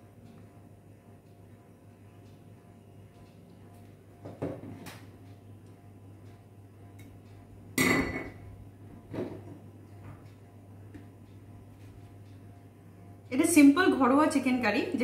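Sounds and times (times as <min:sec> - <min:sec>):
low steady hum: 0:00.0 - 0:15.0
glass clinking: 0:07.8 - 0:08.4.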